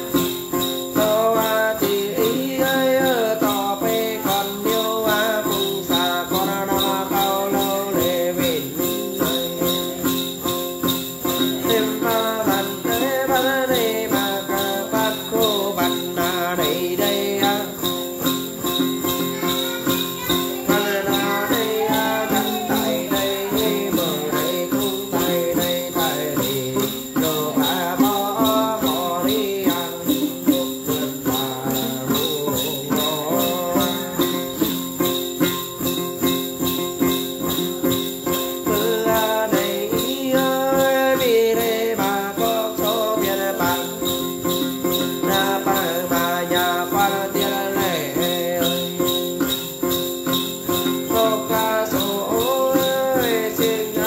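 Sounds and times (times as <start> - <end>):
jingle bells shaking: 0.0 - 54.0
man chanting melodically: 1.0 - 10.4, 11.3 - 18.5, 19.1 - 34.8, 50.8 - 54.0.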